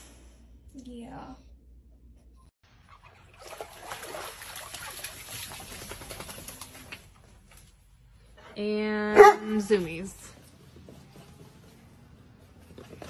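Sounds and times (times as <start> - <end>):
water splashing in a plastic tub: 2.7 - 7.3
water dripping: 2.9 - 7.2.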